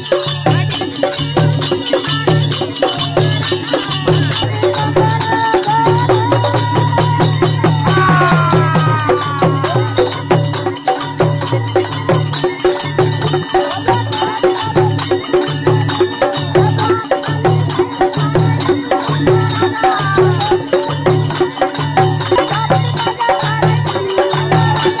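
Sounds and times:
hand drum beat: 0:00.0 - 0:25.0
man singing: 0:02.0 - 0:10.6.

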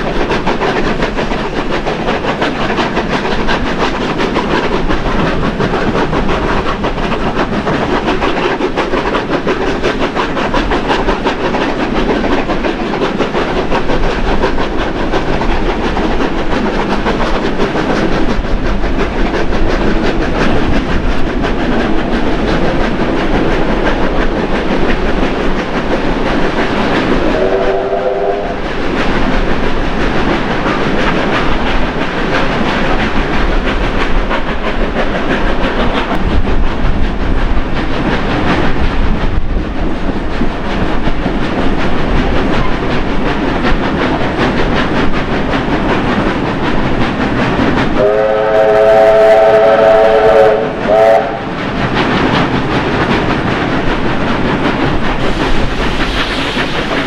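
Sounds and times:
steam locomotive exhaust chuffing: 0:00.0 - 0:57.0
wheel and rail clatter: 0:00.0 - 0:57.0
steam whistle blast: 0:27.4 - 0:28.6, 0:48.0 - 0:51.5.

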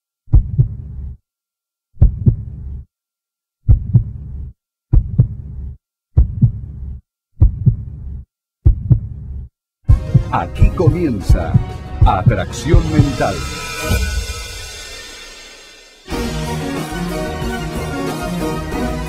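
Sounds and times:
heartbeat thumps: 0:00.3 - 0:01.1, 0:02.0 - 0:02.6, 0:03.7 - 0:14.7.

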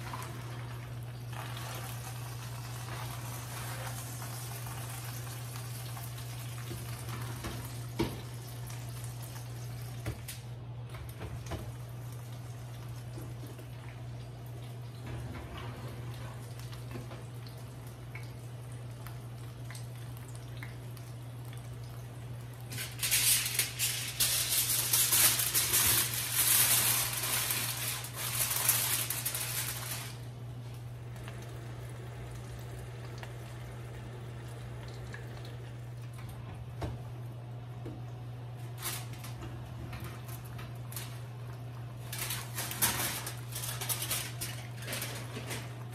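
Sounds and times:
aluminium foil crinkling: 0:00.0 - 0:10.4, 0:22.6 - 0:30.3, 0:38.6 - 0:45.9
steady low hum: 0:27.3 - 0:45.9.

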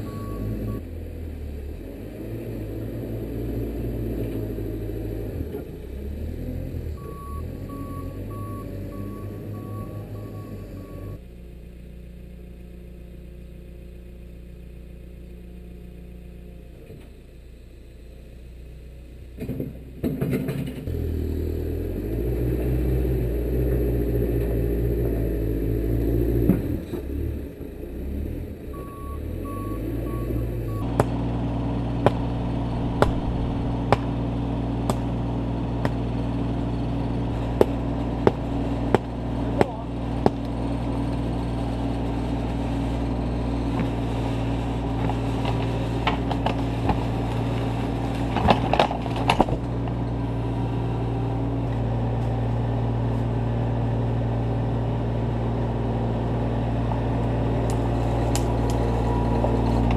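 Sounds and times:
excavator engine running steadily: 0:00.0 - 0:21.8, 0:23.4 - 0:59.9
diesel engine revving: 0:00.0 - 0:59.9
sharp knocks: 0:32.9 - 0:34.1.

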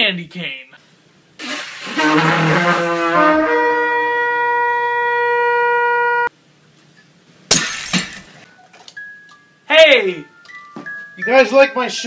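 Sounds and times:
hunting horn notes: 0:01.8 - 0:06.3.

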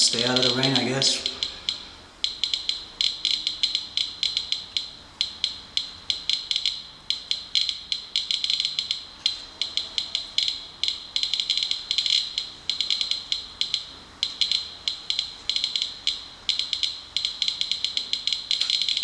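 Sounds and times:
geiger counter clicking: 0:00.1 - 0:19.0.

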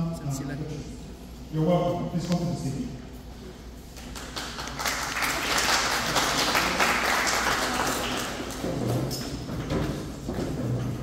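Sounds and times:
audience applauding: 0:04.0 - 0:08.6.

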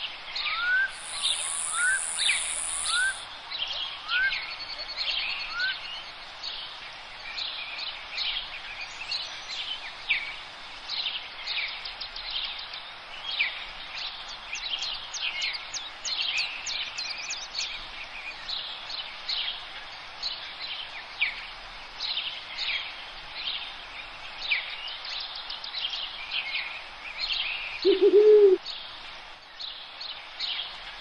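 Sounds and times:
birds chirping and trilling: 0:00.4 - 0:03.2.

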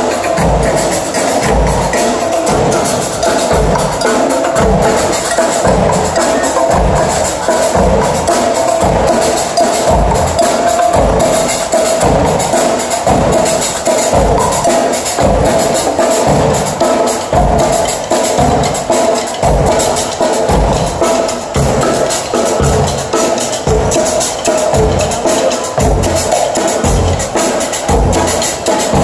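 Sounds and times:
deep drum beats: 0:00.0 - 0:29.0
percussion group playing drums: 0:00.0 - 0:29.0.

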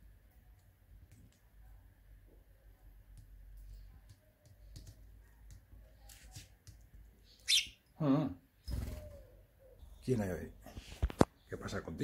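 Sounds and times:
sparrow chirp: 0:07.2 - 0:07.9.

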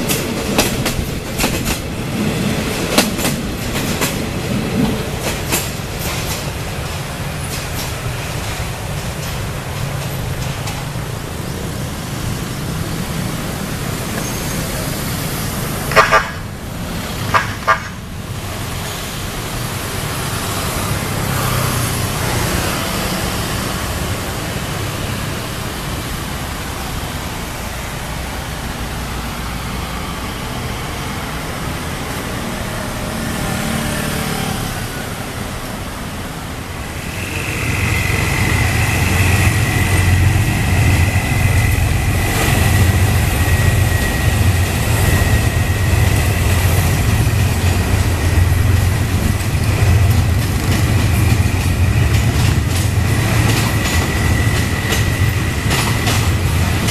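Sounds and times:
train wheels clacking: 0:00.0 - 0:11.4, 0:13.5 - 0:24.9, 0:36.8 - 0:56.9
diesel train engine rumble: 0:00.0 - 0:56.9.

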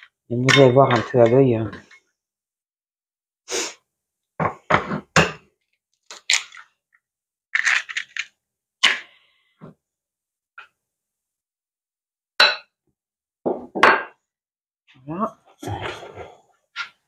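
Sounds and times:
eggshells tapping and cracking: 0:07.6 - 0:08.3.

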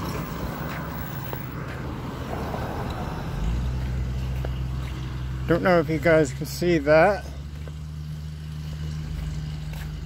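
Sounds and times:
engine hum: 0:00.0 - 0:10.0
road noise: 0:00.0 - 0:10.0.

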